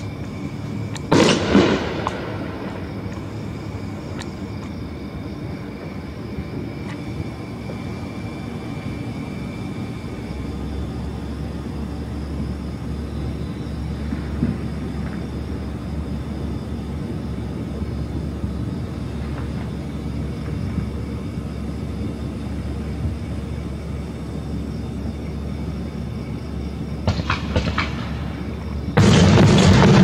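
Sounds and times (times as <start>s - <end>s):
firework bang echoing: 1.1s - 3.1s, 27.1s - 28.2s, 29.0s - 30.0s.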